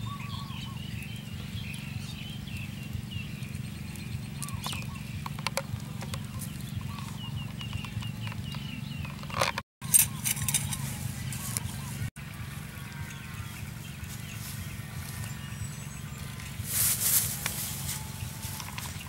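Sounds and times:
small birds chirping: 0.0s - 19.0s
steady low hum: 0.0s - 19.0s
sharp clicks of objects handled: 4.4s - 10.9s.

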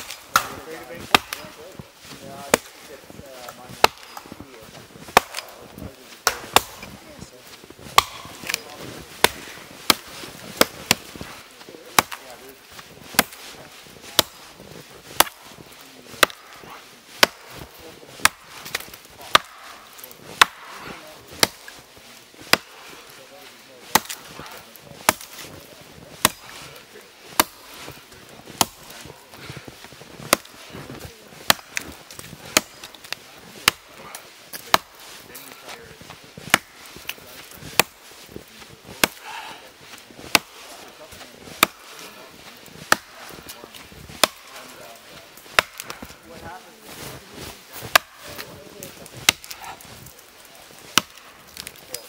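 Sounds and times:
axe chopping log: 0.0s - 1.8s, 2.4s - 2.8s, 3.7s - 4.4s, 5.0s - 7.0s, 7.8s - 12.4s, 13.1s - 13.5s, 14.2s - 14.5s, 15.1s - 21.8s, 22.4s - 22.9s, 23.9s - 25.6s, 26.2s - 26.7s, 27.3s - 28.0s, 28.6s - 29.6s, 30.2s - 35.3s, 36.1s - 37.1s, 37.7s - 39.6s, 40.2s - 42.1s, 42.8s - 46.2s, 47.8s - 50.0s, 50.8s - 51.8s.

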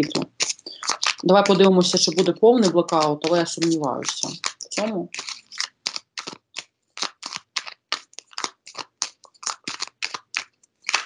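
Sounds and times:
cards being shuffled: 0.0s - 11.0s.

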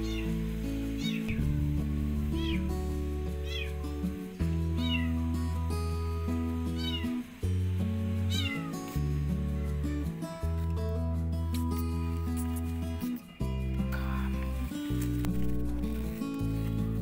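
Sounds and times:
kitten meowing: 0.0s - 0.4s, 1.0s - 1.4s, 2.4s - 2.7s, 3.4s - 3.8s, 4.8s - 5.2s, 6.8s - 7.2s, 8.3s - 8.8s
background music with low notes: 0.0s - 17.0s.

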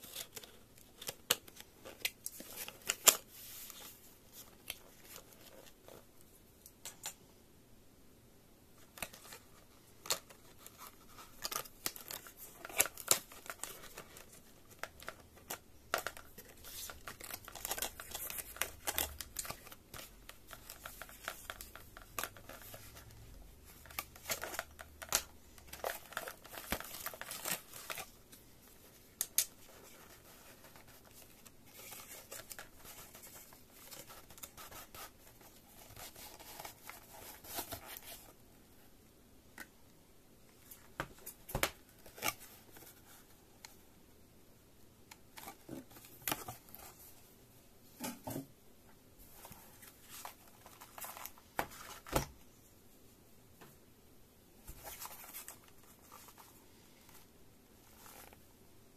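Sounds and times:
packaging rustling and crinkling: 8.9s - 38.4s, 49.2s - 52.3s.

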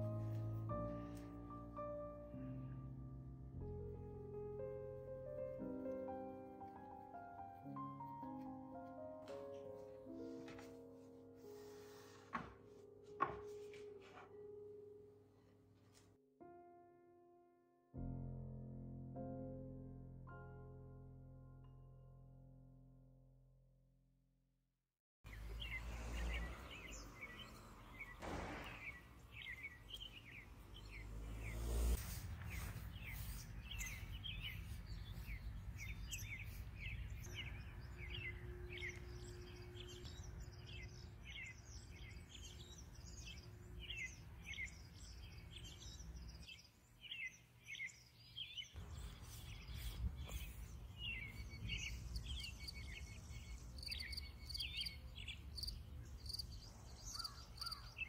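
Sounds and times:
songbirds chirping: 25.3s - 58.0s.

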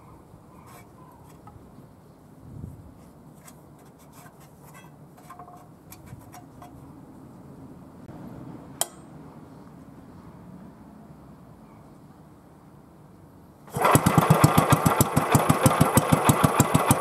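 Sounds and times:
sharp ringing metallic click: 8.8s - 9.1s.

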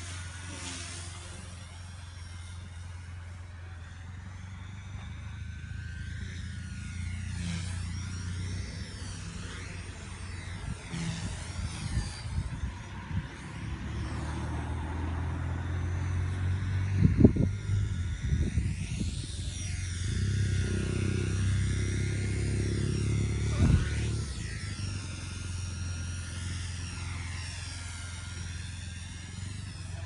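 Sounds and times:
rc helicopter motor whining: 0.0s - 30.0s
wind rumble on microphone: 10.4s - 15.2s, 15.8s - 24.5s.

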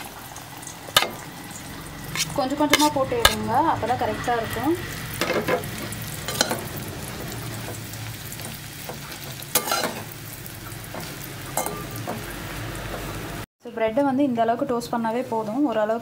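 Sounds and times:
bread sizzling in a pan: 0.0s - 13.5s
ladle scraping and knocking pan: 2.1s - 3.5s, 5.2s - 6.8s, 8.4s - 10.1s.

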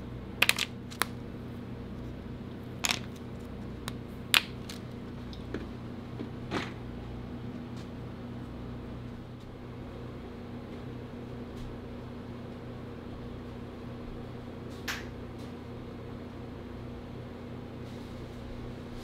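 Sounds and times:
steady low hum: 0.0s - 19.0s
chocolate bars snapping: 0.4s - 1.2s, 2.8s - 4.9s.

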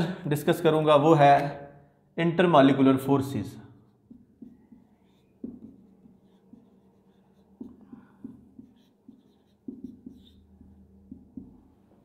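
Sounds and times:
marker writing on whiteboard: 3.8s - 12.0s.

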